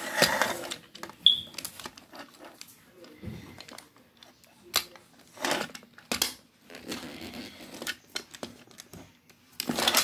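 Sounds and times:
plastic scraping and rustling: 0.0s - 10.0s.

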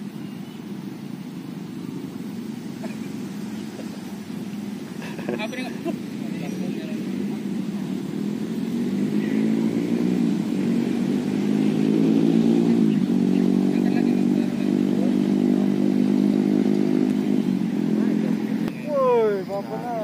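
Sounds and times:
small engine running: 2.8s - 20.0s.

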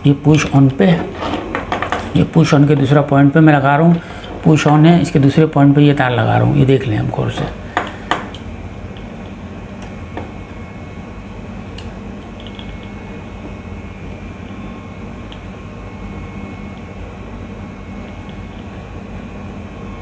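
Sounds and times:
steady machine hum: 0.0s - 20.0s.

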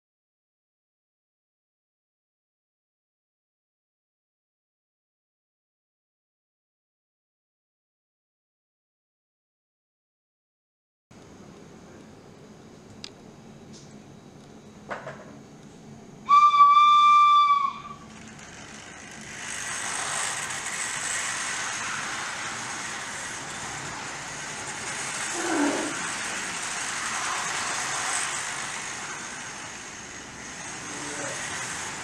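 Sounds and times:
high whistle tone: 16.2s - 18.1s
model train running on track: 16.3s - 32.0s.

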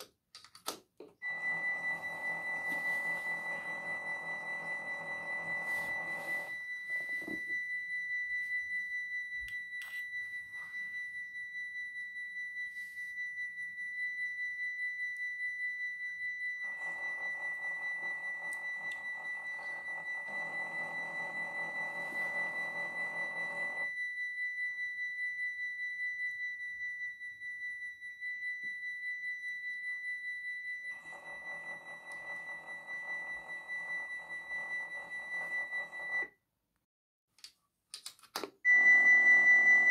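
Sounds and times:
level-crossing bell ringing: 1.2s - 11.5s, 16.6s - 23.9s.

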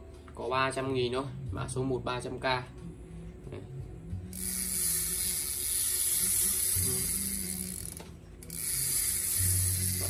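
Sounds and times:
fishing reel whirring: 4.2s - 10.0s.

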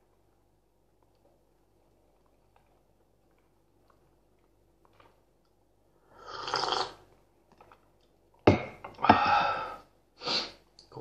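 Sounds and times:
tea slurped from a mug: 6.2s - 7.0s
loud breathy sound: 9.0s - 10.6s.

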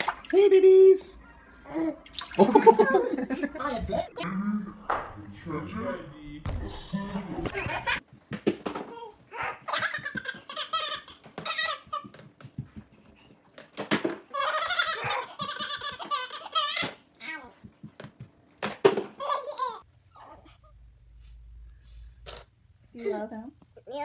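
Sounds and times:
toddler laughing: 8.9s - 12.2s, 14.3s - 17.5s, 19.2s - 19.8s.

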